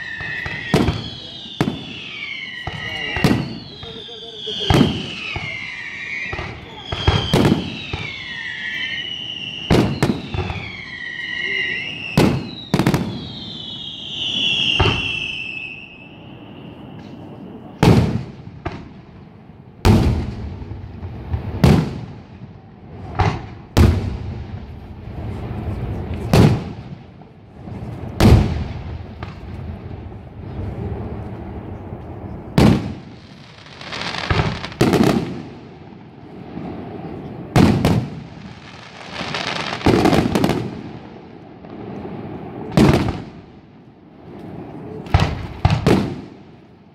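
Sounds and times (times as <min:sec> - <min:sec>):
descending firework whistle: 0:00.0 - 0:18.9
firework crackle: 0:00.0 - 0:46.9
fireworks bursting with bangs: 0:00.0 - 0:46.9.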